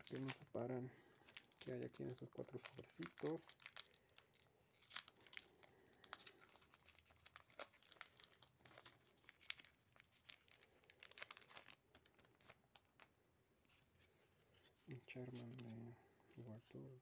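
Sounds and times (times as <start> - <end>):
foil wrapper crinkling and tearing: 0.0 - 0.6, 1.2 - 13.1.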